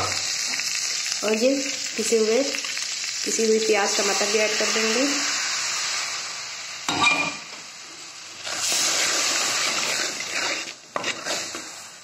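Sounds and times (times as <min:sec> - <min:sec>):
paste sizzling in hot oil: 0:00.0 - 0:12.0
wooden spatula stirring: 0:08.6 - 0:11.8.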